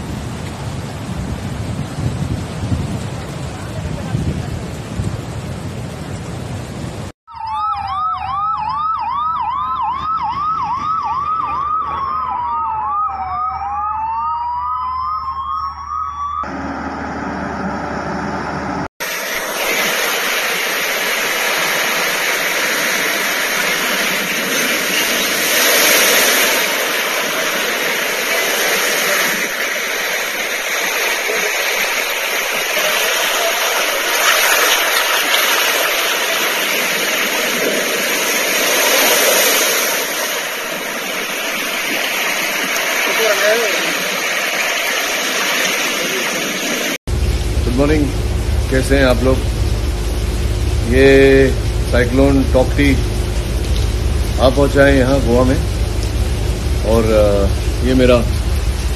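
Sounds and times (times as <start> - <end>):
rush of wind: 0.0 - 7.1
waves washing through street: 0.0 - 7.1, 19.0 - 58.9
electronic siren yelping and wailing: 7.3 - 16.7.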